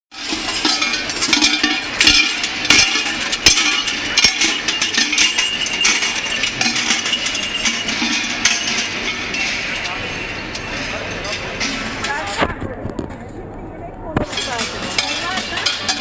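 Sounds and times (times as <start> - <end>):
large metal bells clanging: 0.1 - 12.4, 14.2 - 16.0
chains clinking: 0.2 - 12.3.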